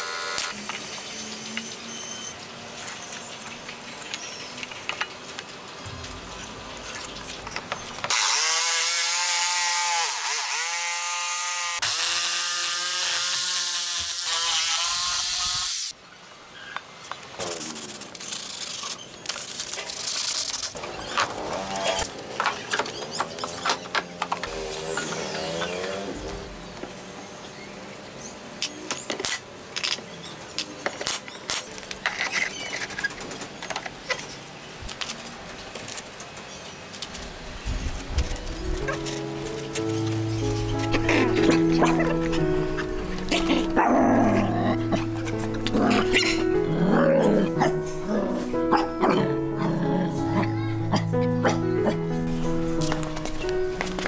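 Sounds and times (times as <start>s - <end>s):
electric jigsaw cutting wood: 0.0s - 0.7s, 8.1s - 15.9s, 24.4s - 26.5s.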